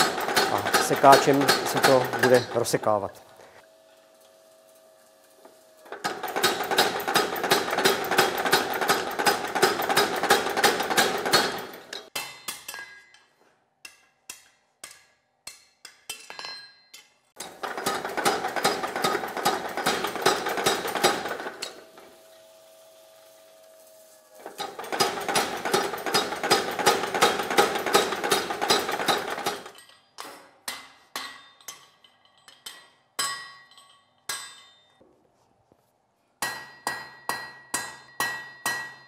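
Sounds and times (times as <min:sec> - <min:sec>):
power hammer pounding: 0:00.0 - 0:02.8, 0:06.0 - 0:12.0, 0:17.4 - 0:21.7, 0:24.6 - 0:29.7.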